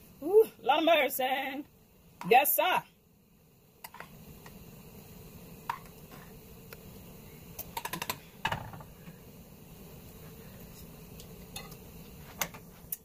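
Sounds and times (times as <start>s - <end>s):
faint steady hum: 0.0s - 13.0s
pan set down knock: 7.8s - 8.9s.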